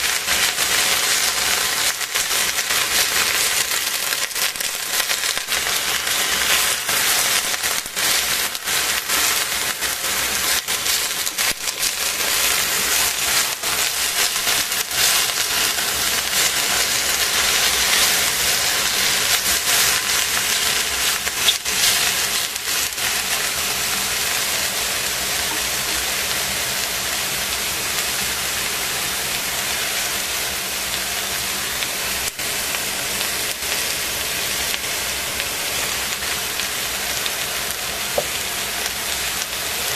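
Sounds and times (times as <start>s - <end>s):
vegetables sizzling in a pot: 0.0s - 39.9s
chopsticks stirring with clicks: 2.2s - 23.6s.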